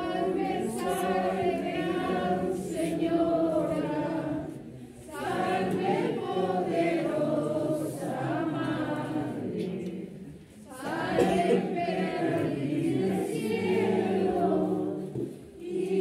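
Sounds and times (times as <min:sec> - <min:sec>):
crowd singing unaccompanied: 0:00.0 - 0:16.0.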